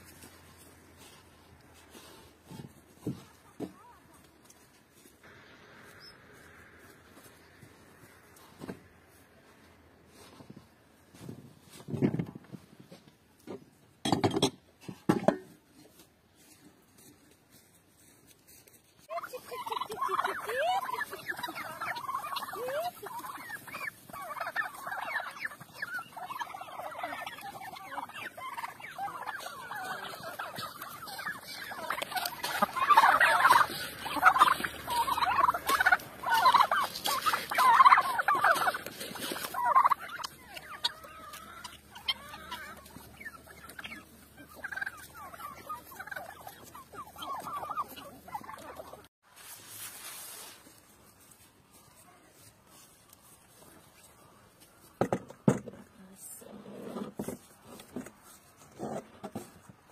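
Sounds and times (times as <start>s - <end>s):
turkeys gobbling: 19.0s - 49.1s, 50.3s - 55.4s.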